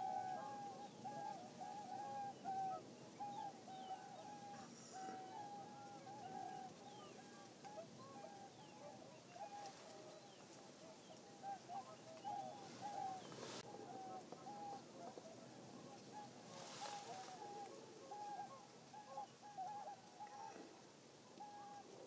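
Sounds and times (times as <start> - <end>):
distant birds calling: 0.0 - 15.4.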